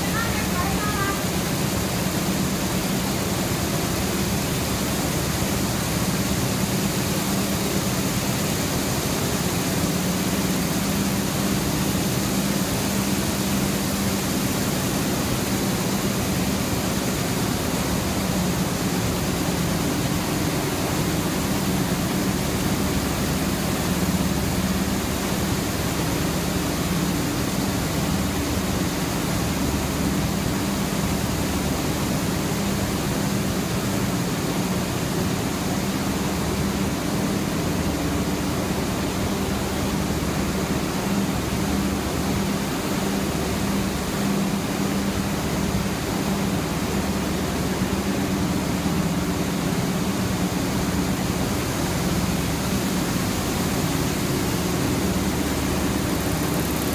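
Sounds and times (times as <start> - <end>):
steady low hum: 0.0 - 56.9
needle looms running: 55.0 - 56.9.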